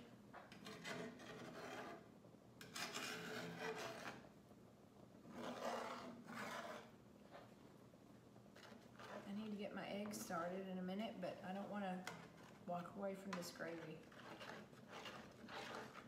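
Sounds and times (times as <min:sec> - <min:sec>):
metal spatula scraping skillet: 0:00.4 - 0:04.3, 0:05.3 - 0:07.4, 0:08.6 - 0:09.6, 0:12.0 - 0:16.0.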